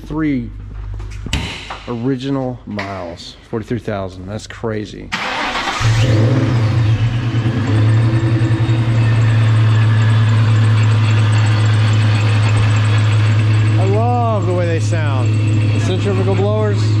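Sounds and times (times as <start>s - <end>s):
car engine starting and idling: 5.1s - 17.0s.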